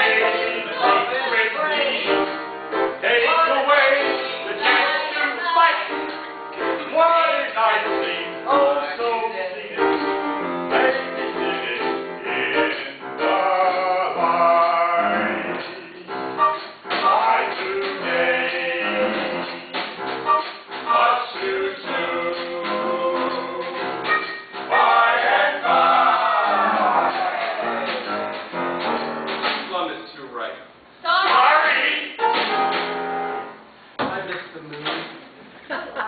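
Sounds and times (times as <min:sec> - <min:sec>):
voices singing together: 0:00.0 - 0:10.1, 0:10.7 - 0:16.1, 0:16.9 - 0:19.8, 0:20.9 - 0:28.2.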